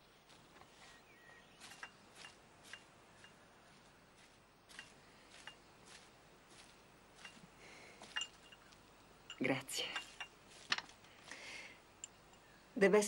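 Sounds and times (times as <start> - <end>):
faint clicking footsteps: 0.2 - 12.4.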